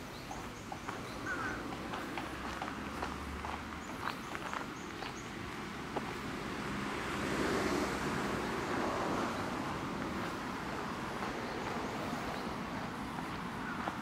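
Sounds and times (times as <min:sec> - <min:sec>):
outdoor rushing noise: 0:01.5 - 0:14.0.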